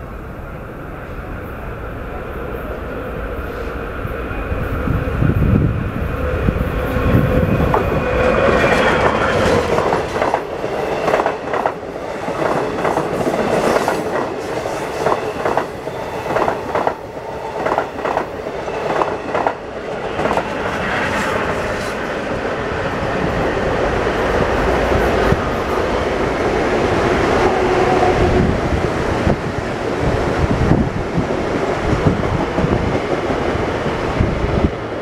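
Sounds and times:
distant electric train: 0.0s - 35.0s
train rumbling past: 0.0s - 35.0s
train wheels clacking on rail joints: 7.2s - 20.8s.

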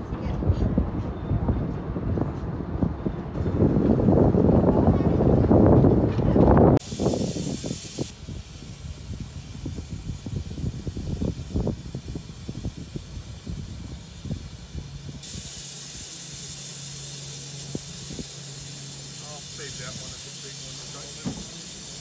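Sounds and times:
steam locomotive hissing: 6.8s - 22.0s.

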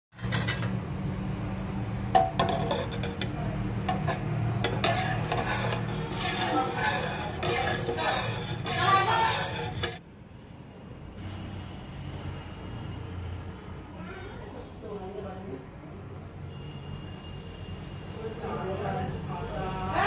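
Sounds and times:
metal ladle scraping pot: 0.1s - 0.9s, 2.0s - 10.0s.

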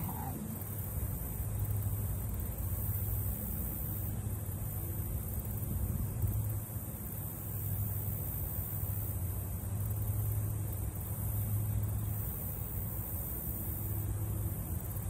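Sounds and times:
constant high hiss: 0.0s - 15.0s.

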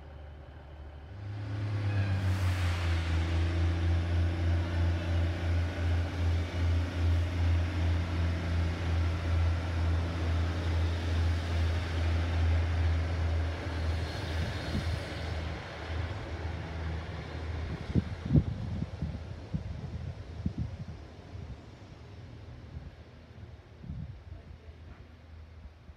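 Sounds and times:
train diesel engines throbbing: 0.0s - 25.9s.

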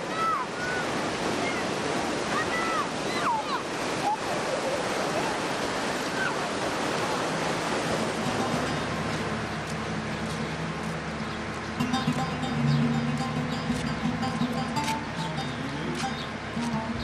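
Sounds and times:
children shouting and squealing: 0.0s - 1.7s, 2.3s - 4.8s
surf washing onto beach: 0.0s - 12.3s.

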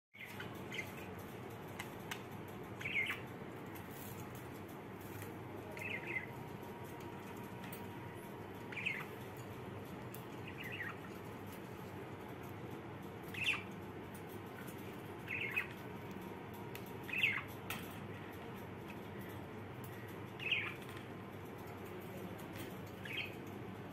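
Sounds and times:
budgerigars chirping: 2.8s - 3.3s, 5.7s - 6.4s, 8.6s - 9.3s, 10.2s - 11.2s, 13.3s - 13.8s, 15.2s - 15.8s, 17.0s - 17.6s, 19.9s - 21.0s, 23.0s - 23.4s.

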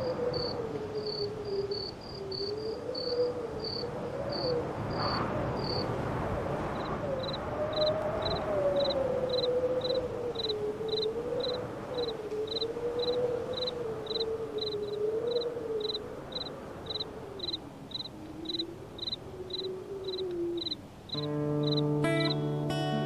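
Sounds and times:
crickets chirping: 0.0s - 22.8s.

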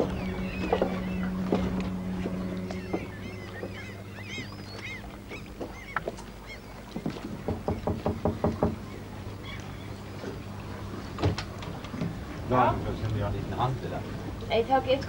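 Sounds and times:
small birds chirping: 0.0s - 6.8s
sharp knocks on a door: 7.5s - 8.8s.

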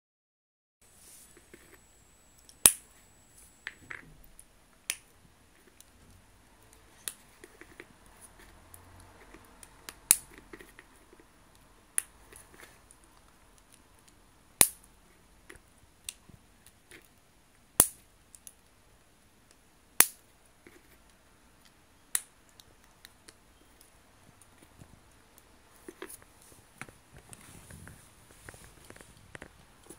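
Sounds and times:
plastic pieces snapping together: 13.6s - 14.9s, 17.8s - 18.6s.

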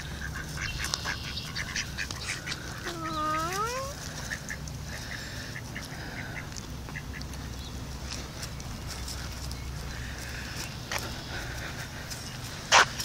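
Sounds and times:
mallard ducks quacking: 0.0s - 7.6s, 12.6s - 13.0s.

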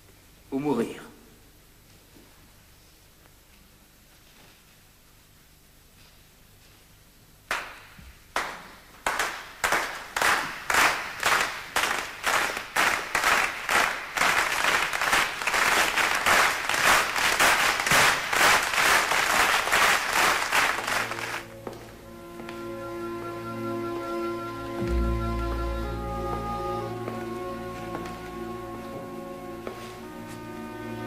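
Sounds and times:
crowd clapping in unison: 7.5s - 21.5s
music with low sustained tones: 21.2s - 31.0s.

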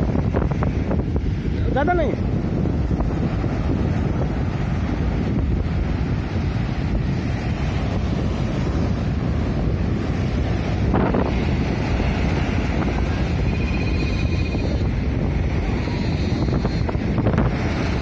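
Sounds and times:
surf breaking on beach: 0.0s - 18.0s
wind buffeting microphone: 0.0s - 18.0s.

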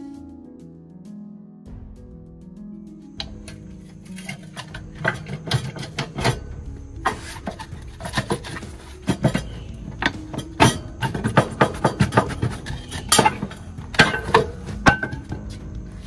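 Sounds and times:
metallic clicks and knocks of hand tools: 3.2s - 15.6s
hand tools scraping metal: 3.2s - 16.0s.

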